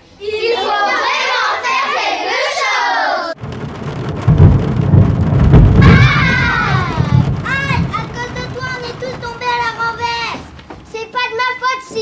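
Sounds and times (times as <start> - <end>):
children's voices: 0.0 - 3.4, 5.8 - 12.0
rumbling thunder: 3.4 - 11.0.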